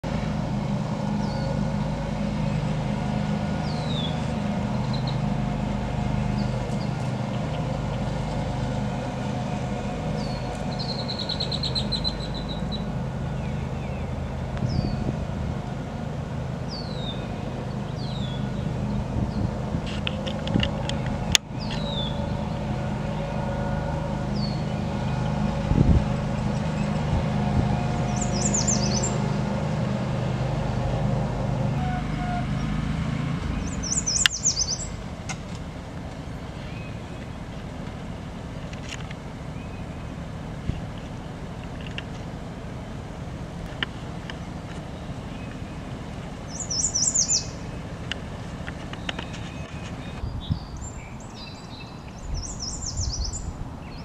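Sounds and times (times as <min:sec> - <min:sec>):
steady low rumble: 0:00.0 - 0:46.6
songbirds calling: 0:00.1 - 0:54.0
rapid bird trill: 0:28.1 - 0:29.3, 0:46.5 - 0:47.7.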